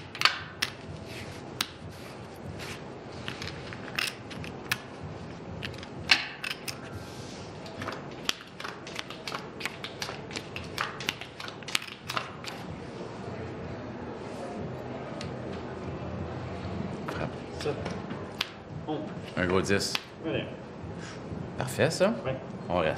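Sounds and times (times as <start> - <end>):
playing cards clicking and slapping: 0.0 - 0.9, 3.2 - 4.9, 7.6 - 12.7
low background noise: 0.0 - 22.9.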